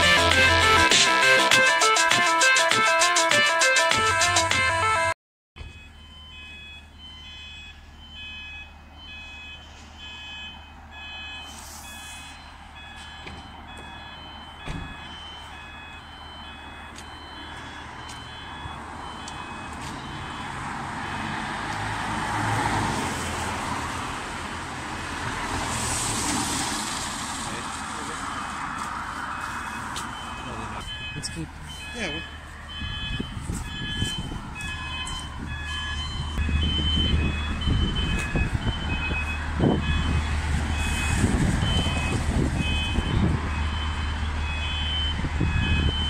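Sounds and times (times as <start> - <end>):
level crossing alarm beeping: 0.0 - 21.8, 29.3 - 46.0
car approaching: 12.3 - 46.0.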